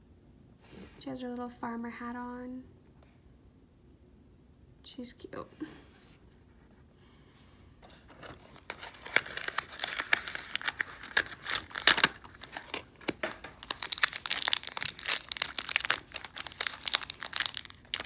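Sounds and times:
foil bag tearing and crinkling: 0:08.5 - 0:18.0.

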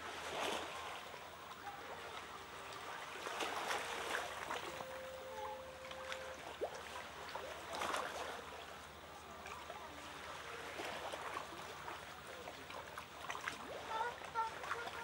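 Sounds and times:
water sloshing around rocks: 0:00.0 - 0:15.0
seal pup splashing: 0:09.4 - 0:15.0.

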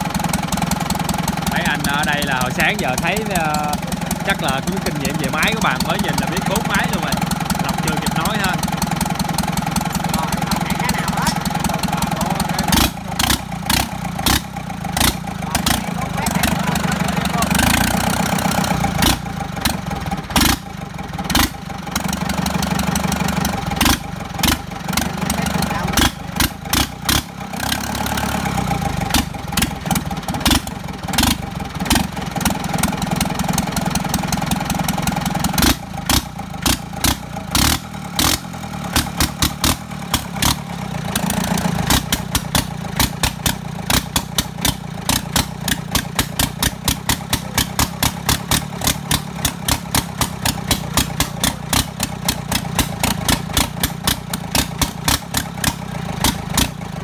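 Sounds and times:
tractor diesel engine knocking: 0:00.0 - 0:57.0.

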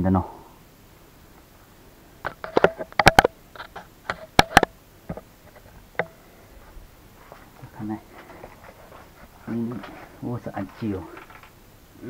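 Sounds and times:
sharp knocks and clicks: 0:02.2 - 0:06.2.

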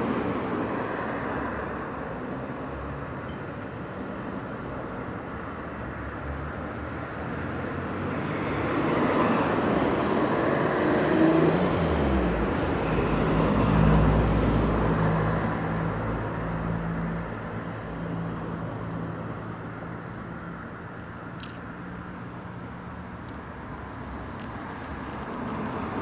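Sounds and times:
vehicle passing by: 0:07.5 - 0:17.3.

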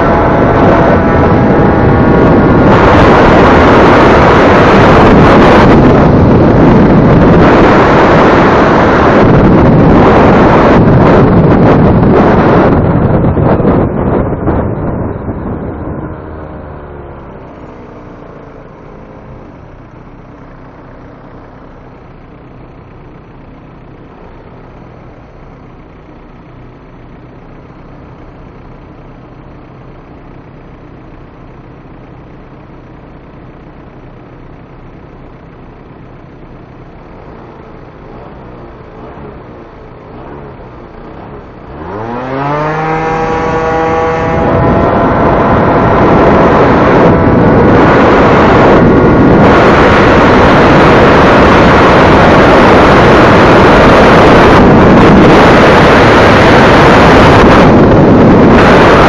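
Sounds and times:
wind buffeting microphone: 0:00.0 - 0:23.2, 0:37.5 - 0:59.0
motor scooter engine: 0:00.0 - 0:59.0.

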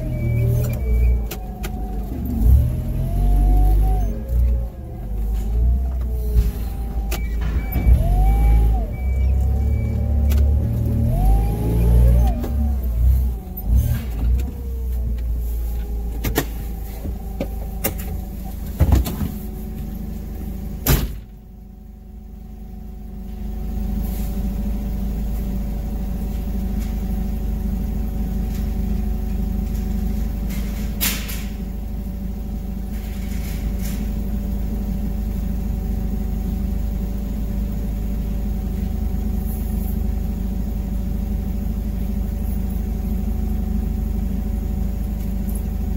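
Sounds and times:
forklift motor whining: 0:00.0 - 0:21.4
forklift clunks and knocks: 0:05.3 - 0:10.7, 0:16.2 - 0:19.9, 0:20.8 - 0:21.4, 0:29.7 - 0:31.7.

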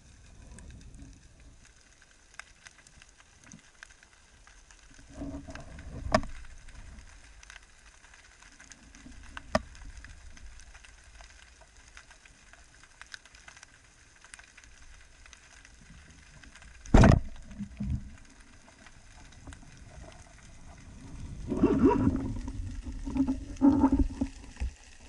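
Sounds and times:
underwater hiss with crackles: 0:00.0 - 0:25.0
muffled rumble: 0:16.8 - 0:25.0.

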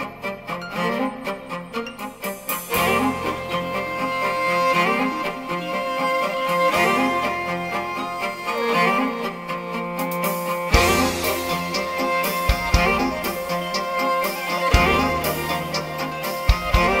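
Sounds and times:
bowed strings music: 0:00.0 - 0:17.0
low bass line: 0:10.7 - 0:17.0.

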